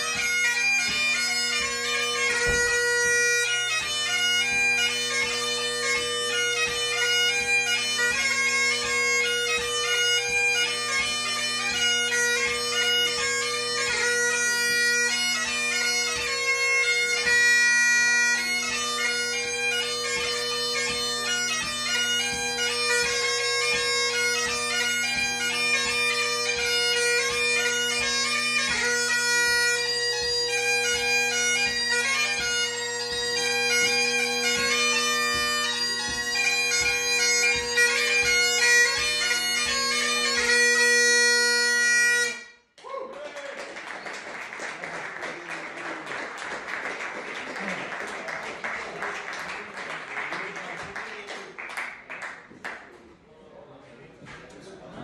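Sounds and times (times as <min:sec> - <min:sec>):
bagpipe drones: 0:00.0 - 0:42.7
bagpipe chanter melody: 0:00.0 - 0:42.8.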